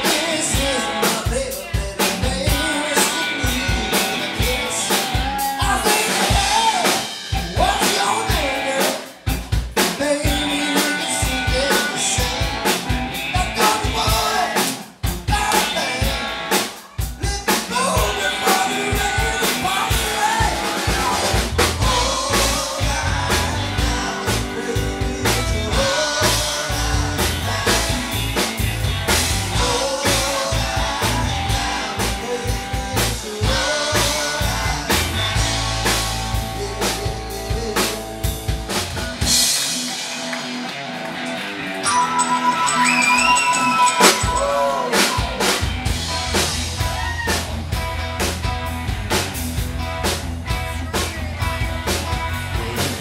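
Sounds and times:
drum kit: 0:00.0 - 0:53.0
electric guitar: 0:00.0 - 0:53.0
keyboards: 0:00.0 - 0:53.0.

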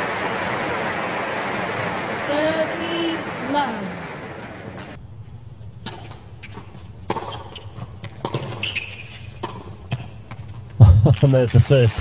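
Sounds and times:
low background hum: 0:00.0 - 0:08.2
tennis ball hitting hard court: 0:05.8 - 0:10.1.

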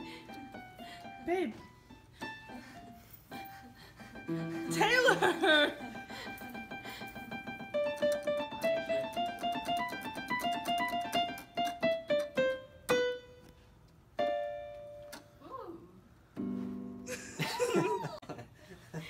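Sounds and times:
electronic keyboard piano notes: 0:06.3 - 0:13.4.

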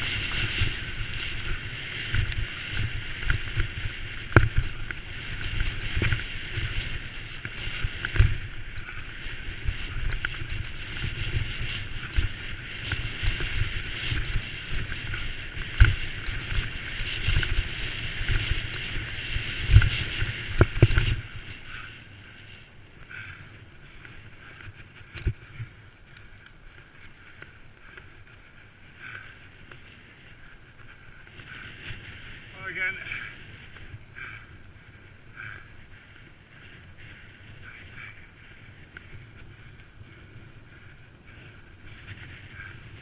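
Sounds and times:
bike knocking on bumps: 0:00.0 - 0:21.9
wind on microphone: 0:00.0 - 0:22.4
bike rattling rumble: 0:00.0 - 0:43.0.

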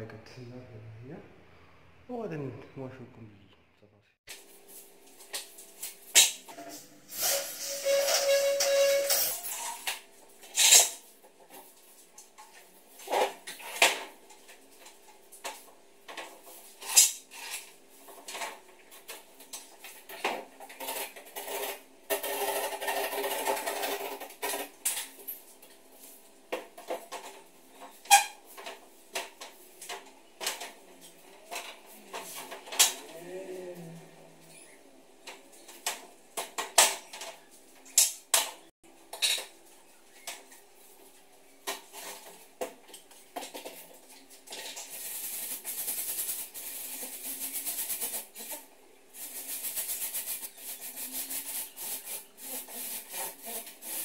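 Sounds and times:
metal rasping scrape: 0:06.5 - 0:09.9.

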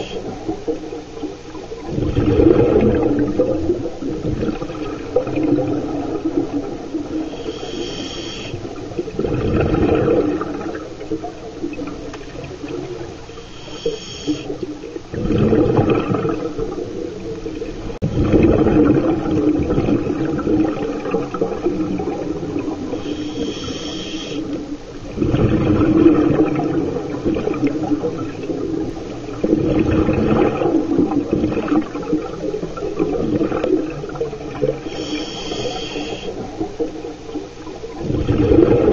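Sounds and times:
exhaled bubbles rushing: 0:00.0 - 0:38.9
regulator hissing inhalation: 0:07.3 - 0:08.6, 0:13.3 - 0:14.6, 0:22.9 - 0:24.5, 0:34.8 - 0:36.4.

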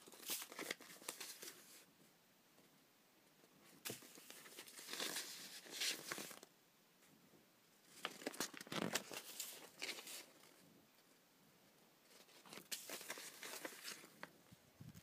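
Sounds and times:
paper rustling and crinkling: 0:00.0 - 0:01.8, 0:03.7 - 0:06.5, 0:07.9 - 0:10.6, 0:12.1 - 0:14.4.

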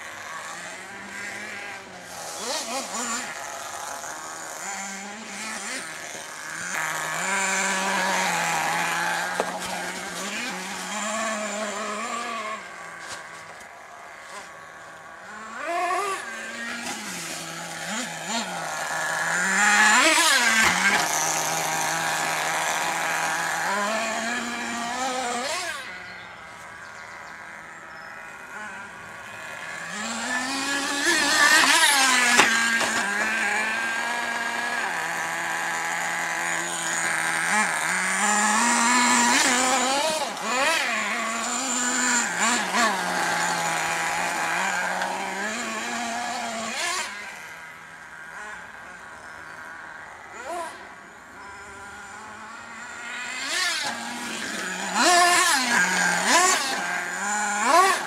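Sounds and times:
small engine idling and revving: 0:00.0 - 0:58.0.

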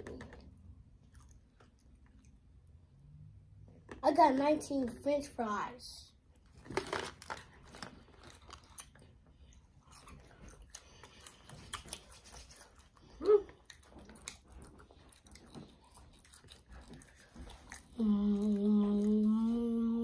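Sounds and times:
chewing crunchy food: 0:00.0 - 0:02.8, 0:06.3 - 0:19.6.

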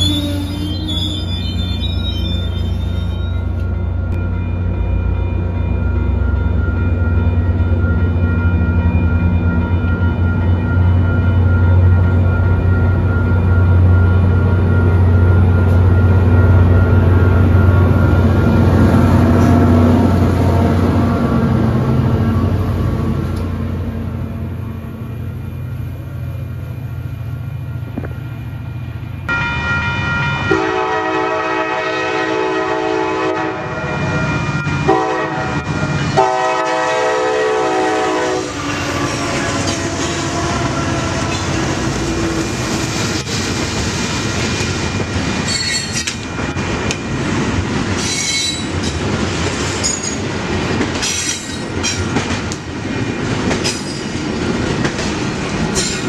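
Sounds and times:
wheel squeals: 0:00.0 - 0:03.6, 0:45.4 - 0:46.2, 0:48.0 - 0:48.9
freight train rumbling past: 0:00.0 - 0:56.0
locomotive air horn blasts: 0:30.5 - 0:34.0, 0:34.8 - 0:41.6
train wheel clicks: 0:48.0 - 0:56.0.

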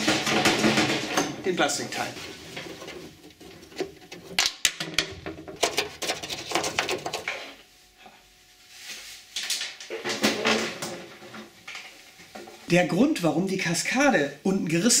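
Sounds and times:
plastic cowl clicking and knocking: 0:00.0 - 0:07.5.

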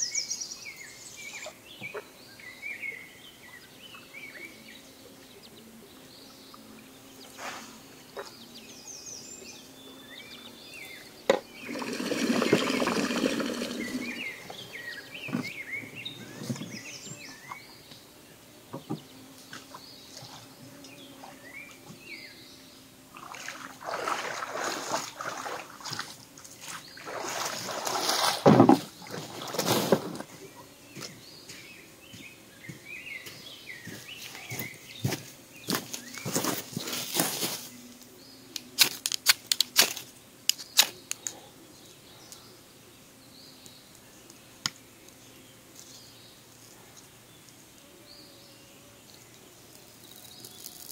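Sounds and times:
small birds chirping: 0:00.0 - 0:28.3, 0:30.2 - 0:50.9
hull scraping against rock: 0:11.6 - 0:14.5
water sloshing: 0:11.6 - 0:14.6, 0:23.1 - 0:30.3.

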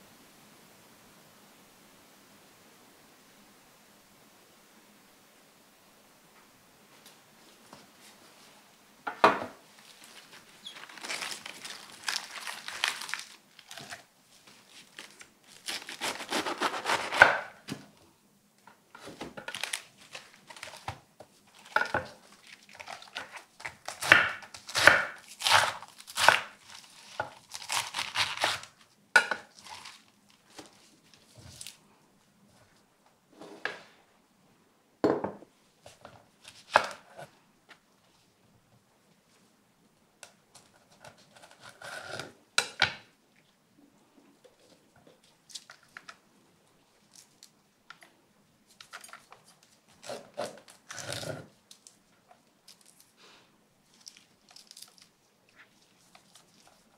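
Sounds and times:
lettuce leaves crunching: 0:09.8 - 0:17.3, 0:19.4 - 0:28.8, 0:29.4 - 0:31.8, 0:53.9 - 0:56.9
knife chopping peppers: 0:15.7 - 0:17.6, 0:23.9 - 0:26.6.

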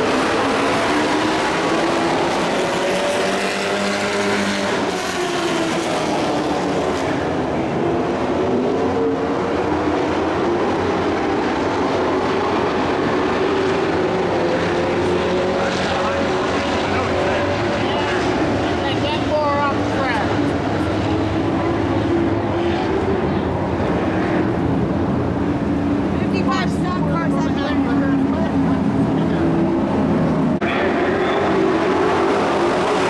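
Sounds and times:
race truck engines revving: 0:00.0 - 0:33.0.

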